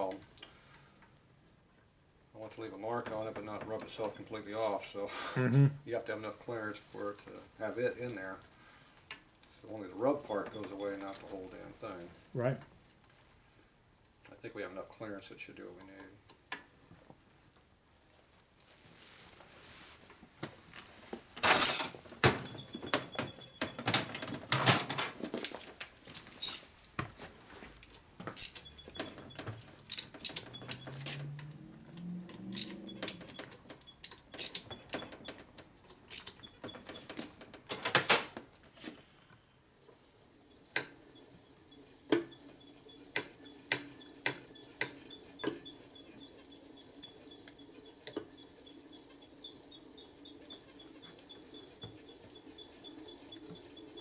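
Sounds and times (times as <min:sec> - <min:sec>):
metal tools clinking on engine: 0:21.4 - 0:22.0, 0:22.7 - 0:26.9, 0:27.8 - 0:31.4, 0:32.3 - 0:35.4, 0:36.0 - 0:37.2.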